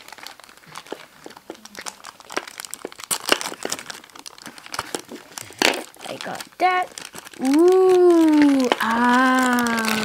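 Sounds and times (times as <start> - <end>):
plastic packaging crinkling: 0.0 - 10.0.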